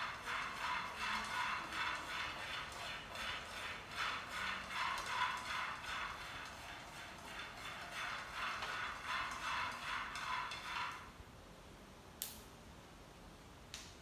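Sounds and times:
spatula scraping a frying pan: 0.0 - 11.2.

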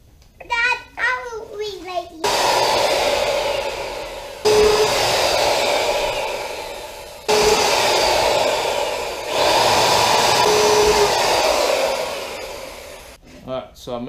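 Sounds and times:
router whining cutting plastic: 2.2 - 13.2.

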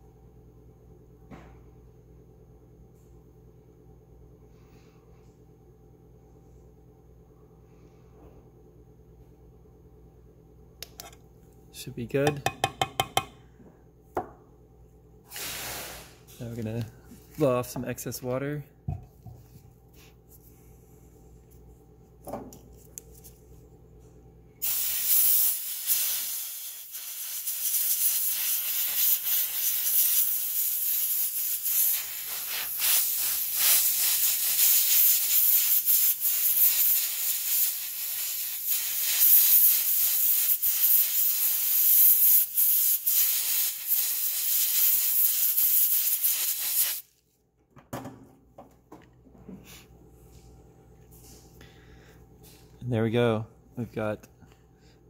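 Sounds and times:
air blow gun hissing: 15.3 - 16.3, 24.6 - 47.1.

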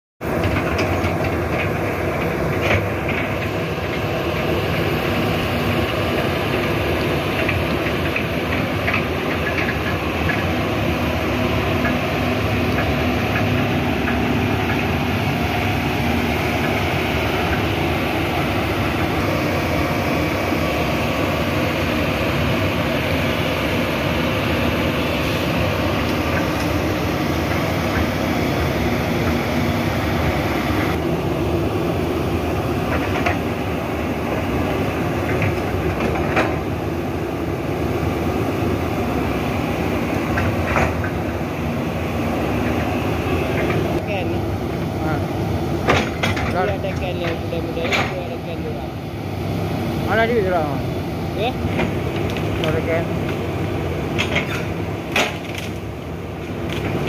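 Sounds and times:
excavator diesel engine running: 0.2 - 57.0
machine clanks: 7.3 - 10.9, 45.8 - 48.6, 54.1 - 55.9.

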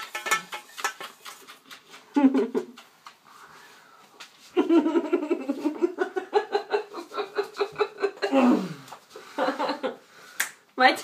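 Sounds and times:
woman laughing: 2.1 - 2.8, 4.6 - 8.7.

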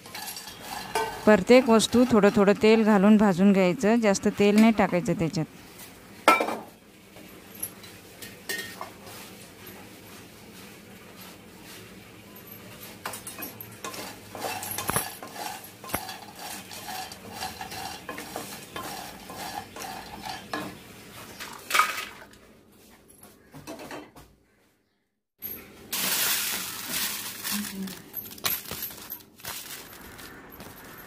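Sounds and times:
dry pods rattling in a pan: 0.0 - 5.3, 13.6 - 20.6, 25.9 - 31.0
seeds poured onto a steel plate: 25.9 - 28.1.

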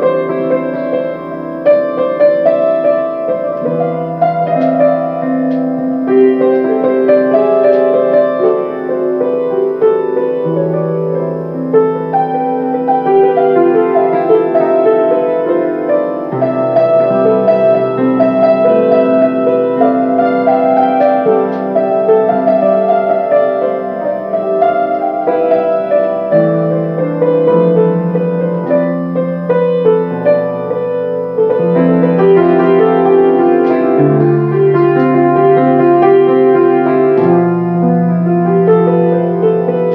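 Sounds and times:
slow solo piano melody: 0.0 - 39.9.

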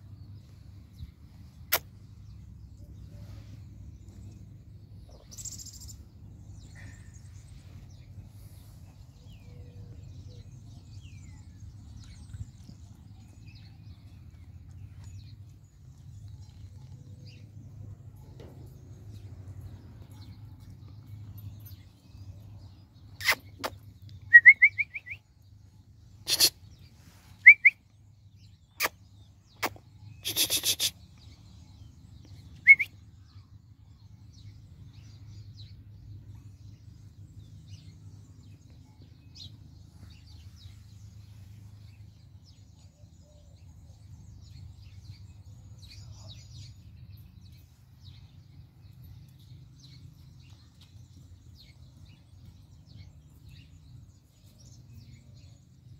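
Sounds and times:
puppies squeaking: 23.2 - 23.7.

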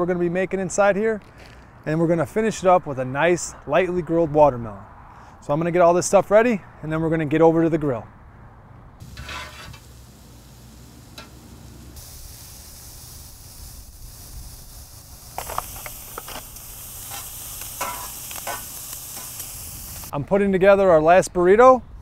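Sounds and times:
food sizzling on a grill: 9.0 - 20.1
metal spatula scraping and clinking: 9.1 - 9.8, 17.1 - 19.3.

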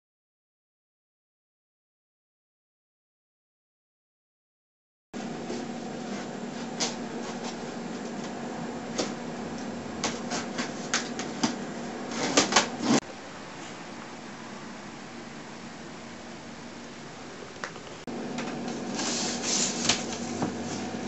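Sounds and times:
blade cutting tape and cardboard: 12.1 - 13.0.

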